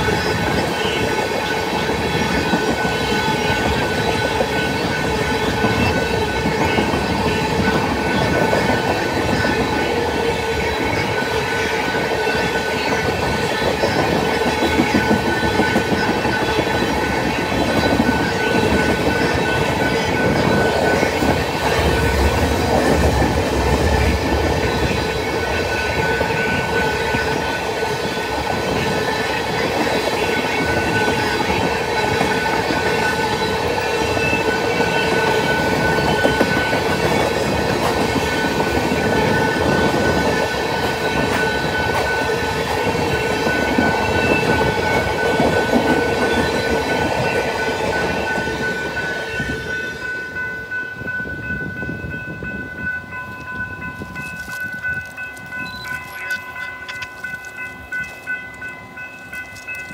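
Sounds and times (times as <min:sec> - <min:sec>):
train wheels clattering on rails: 0:00.0 - 0:59.9
high-pitched ringing tone: 0:38.1 - 0:59.9.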